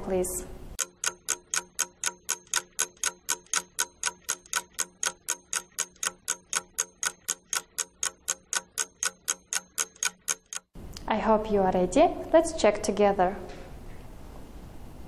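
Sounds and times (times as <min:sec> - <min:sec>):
clock ticking: 0:00.8 - 0:10.7.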